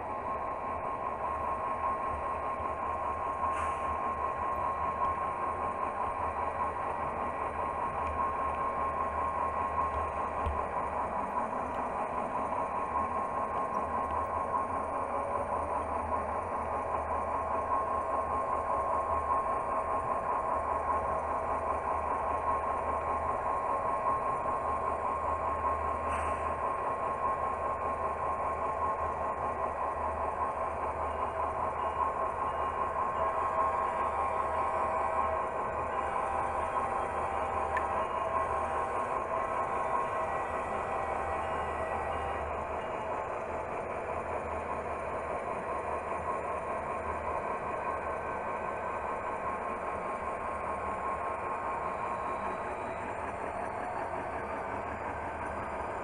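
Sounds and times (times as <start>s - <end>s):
model train running on track: 0.0s - 56.0s.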